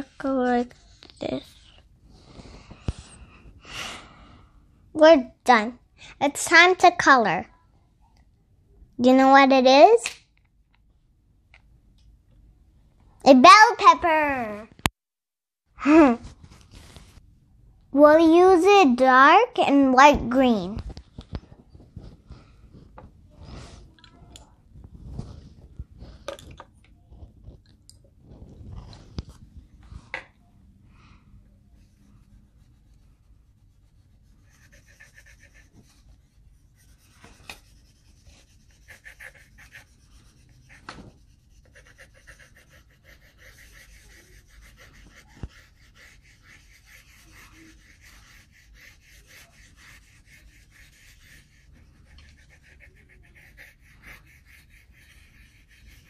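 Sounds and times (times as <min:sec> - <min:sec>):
pencil scratching on paper: 0:31.7 - 0:56.0.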